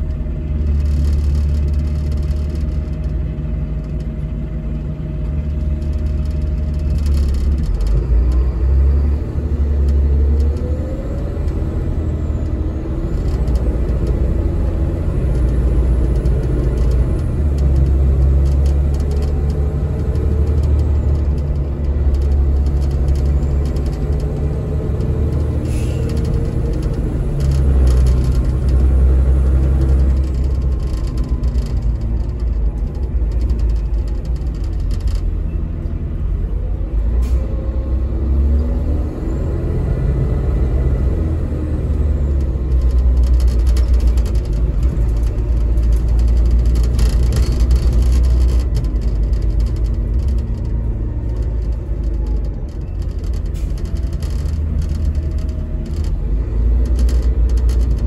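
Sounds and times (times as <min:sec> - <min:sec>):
bus diesel engine rumble: 0:00.0 - 0:58.0
brief clatters: 0:12.3 - 0:36.0, 0:42.3 - 0:58.0.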